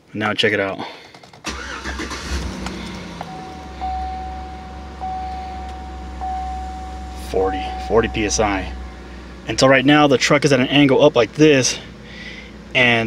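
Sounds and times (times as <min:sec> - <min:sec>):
car engine idling: 0:01.4 - 0:13.0
dashboard chime: 0:03.2 - 0:09.0.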